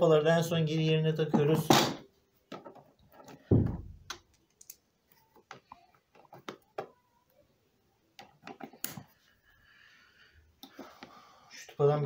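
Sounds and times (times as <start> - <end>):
dull thump: 3.5 - 4.0.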